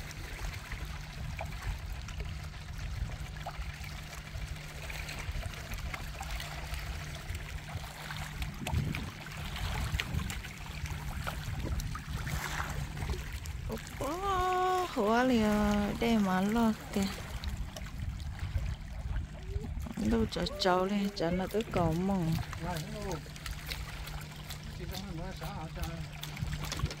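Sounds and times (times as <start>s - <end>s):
low rumble: 0.0s - 27.0s
small waves lapping on rocks: 0.0s - 27.0s.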